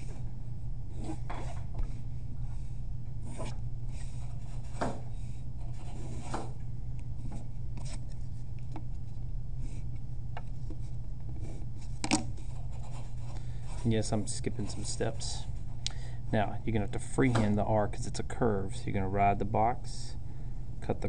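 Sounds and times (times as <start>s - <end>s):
steady low hum: 0.0s - 21.0s
pencil scratching on paper: 12.5s - 13.9s.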